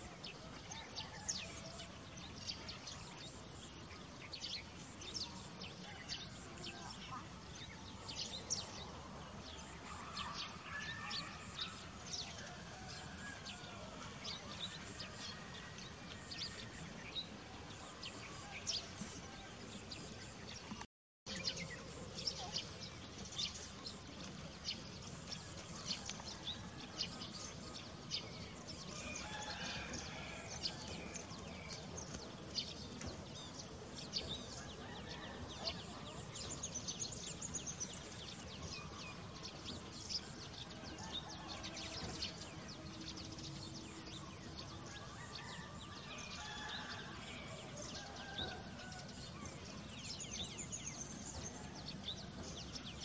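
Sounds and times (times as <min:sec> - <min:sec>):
steady outdoor hiss: 0:00.0 - 0:53.0.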